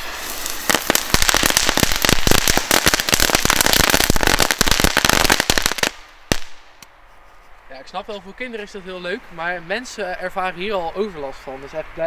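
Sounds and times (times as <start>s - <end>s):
firecrackers popping and crackling: 0.0s - 7.0s.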